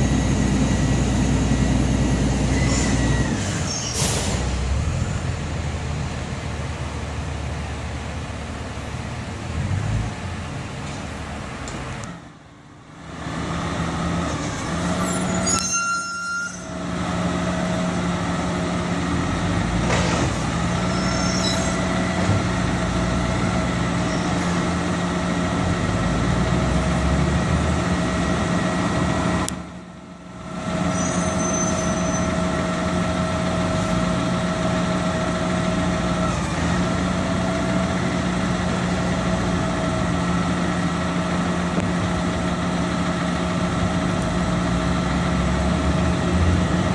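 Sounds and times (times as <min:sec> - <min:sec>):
garbage truck engine humming: 0:00.0 - 0:15.6, 0:16.5 - 0:46.9.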